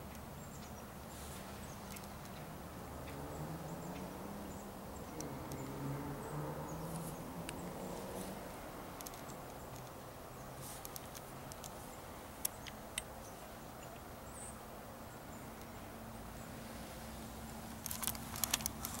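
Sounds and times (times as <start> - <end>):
crackling clicks of leaves and twigs: 6.8 - 10.0, 10.6 - 13.1, 17.6 - 19.0.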